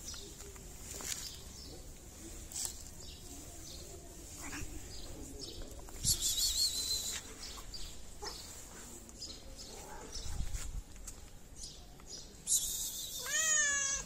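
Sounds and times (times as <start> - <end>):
cat meowing: 13.2 - 14.0.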